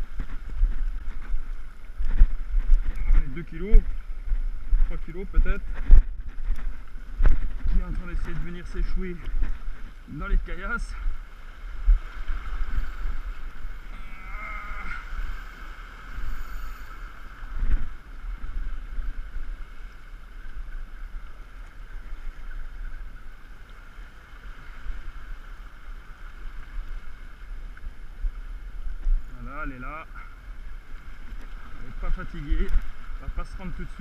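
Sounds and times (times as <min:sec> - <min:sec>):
wind buffeting microphone: 0:00.0 - 0:23.4
sea washing against rocks: 0:00.0 - 0:34.0.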